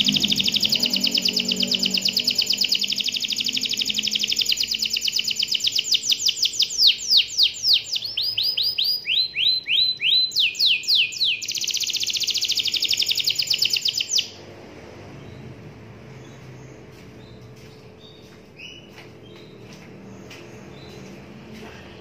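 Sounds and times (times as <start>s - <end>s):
canary singing trills: 0.0s - 14.4s.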